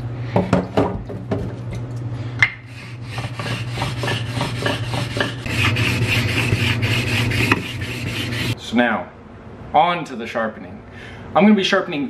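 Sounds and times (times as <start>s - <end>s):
stone rasping on wet whetstone: 2.7s - 8.6s.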